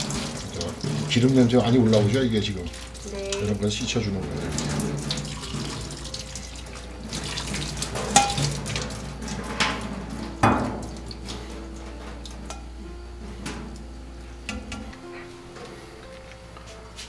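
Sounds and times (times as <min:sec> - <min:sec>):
water splashing in a sink: 0:00.0 - 0:12.6
tongs clinking on a strainer: 0:08.0 - 0:08.8.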